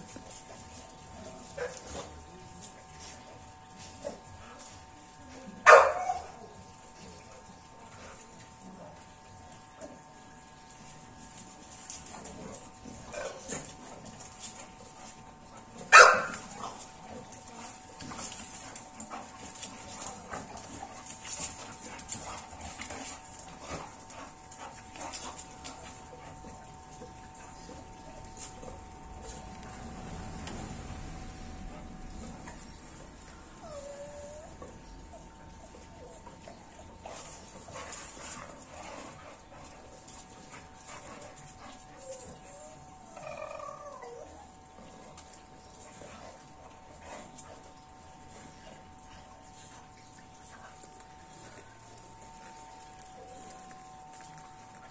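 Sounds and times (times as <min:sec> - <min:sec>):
dogs whimpering and whining: 0:31.4 - 0:37.1, 0:41.6 - 0:45.2.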